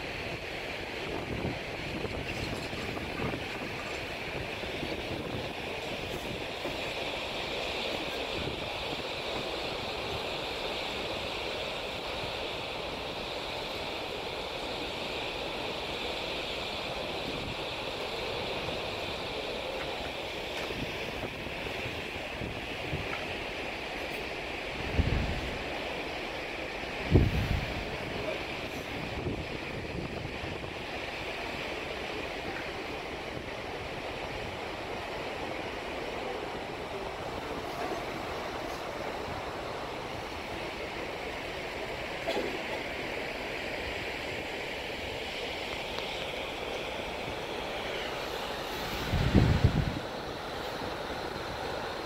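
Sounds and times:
moving water: 0:00.0 - 0:52.0
wind: 0:00.0 - 0:52.0
wind rushing: 0:48.8 - 0:50.1.

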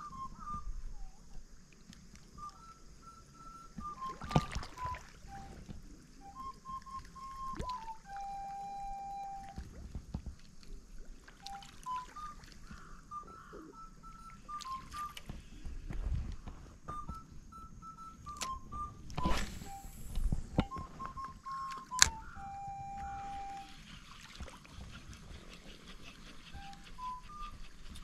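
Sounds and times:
simple high tone tune: 0:02.4 - 0:09.6, 0:11.4 - 0:12.5, 0:13.2 - 0:15.4, 0:16.9 - 0:23.8
short rush of noise: 0:19.2 - 0:20.6.

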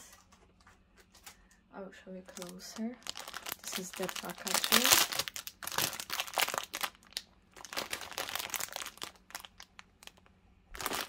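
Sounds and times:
plastic wrapping crinkling: 0:02.2 - 0:11.0.

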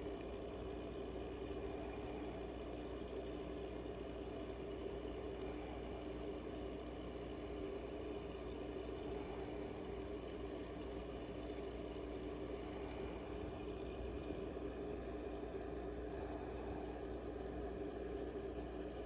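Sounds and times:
air pump humming: 0:00.0 - 0:19.0
faint water gurgle: 0:00.0 - 0:19.0.

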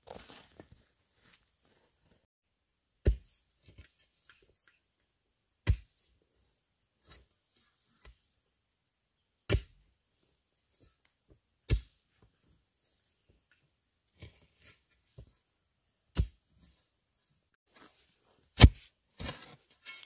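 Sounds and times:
iron bar striking clay soil: 0:03.0 - 0:04.8, 0:05.6 - 0:06.1, 0:09.5 - 0:09.8, 0:11.6 - 0:12.0, 0:16.1 - 0:16.7, 0:18.6 - 0:20.0.

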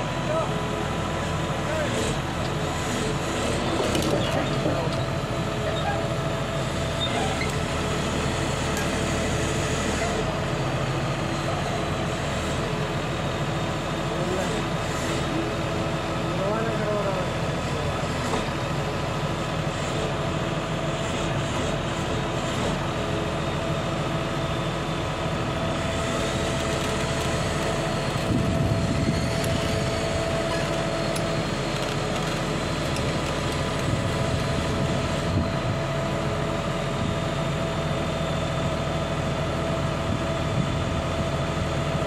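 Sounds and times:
diesel engine running: 0:00.0 - 0:42.0
steady whine: 0:23.4 - 0:42.0.

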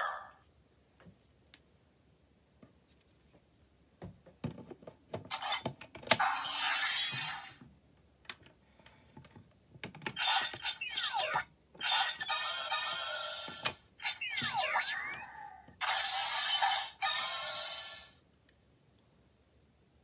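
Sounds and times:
toy electronic sound effects: 0:06.2 - 0:07.6, 0:10.1 - 0:18.2.

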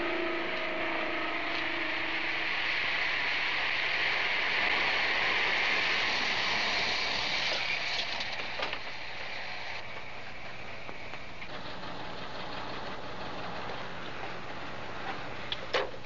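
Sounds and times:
truck tyres on cobbles: 0:06.1 - 0:16.0.

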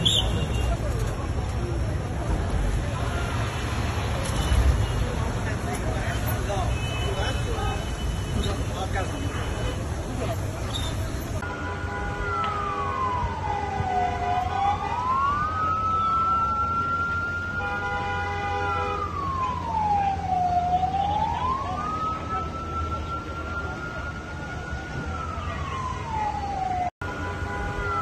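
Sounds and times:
low traffic rumble: 0:00.0 - 0:28.0
emergency siren wailing: 0:12.2 - 0:28.0.

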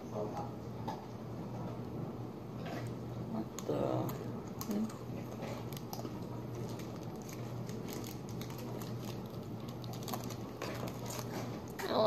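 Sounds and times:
steady low hum: 0:00.0 - 0:12.0
snacks being chewed: 0:02.6 - 0:11.8
wrappers rustling: 0:05.4 - 0:11.7.

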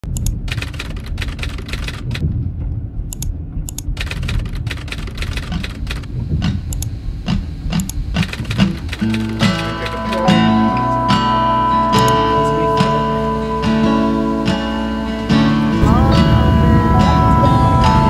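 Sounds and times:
car driving rumble: 0:00.0 - 0:18.0
keyboard typing clicks: 0:00.1 - 0:02.2, 0:03.1 - 0:10.9.

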